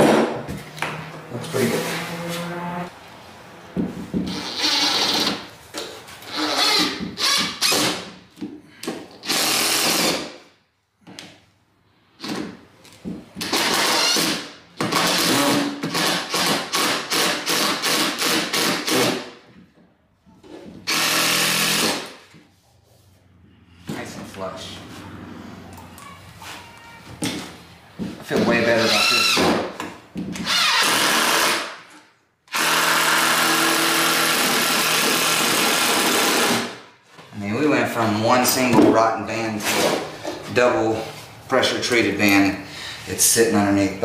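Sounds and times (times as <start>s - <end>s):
cordless drill drilling into wood: 9.2s - 10.2s, 20.9s - 22.2s, 30.4s - 31.7s, 32.5s - 36.8s.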